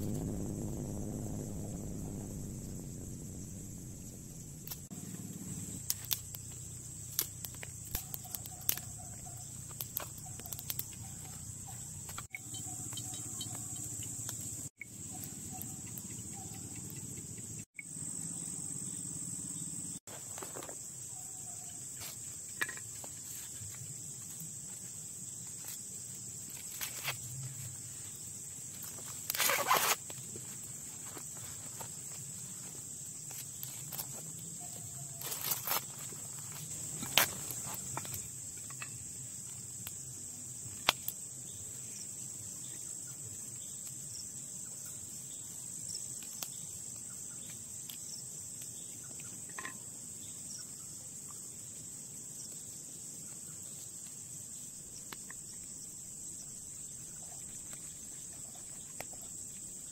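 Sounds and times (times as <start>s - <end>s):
insects chirping: 0.0s - 59.9s
corn husk tearing: 29.2s - 30.0s.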